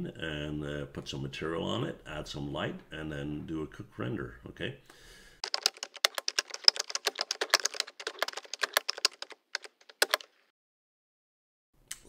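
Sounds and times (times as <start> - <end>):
computer keyboard typing: 5.4 - 10.3.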